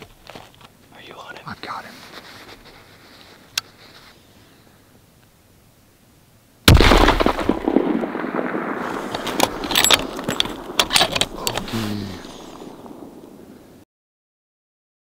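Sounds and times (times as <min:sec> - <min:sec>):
rifle shot echoing: 0:06.7 - 0:11.5, 0:12.2 - 0:13.7.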